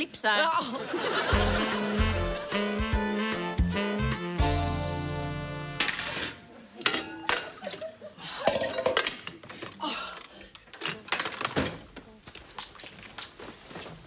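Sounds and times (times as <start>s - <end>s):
music chord: 1.4s - 6.1s
pots and utensils clanking: 5.8s - 9.7s.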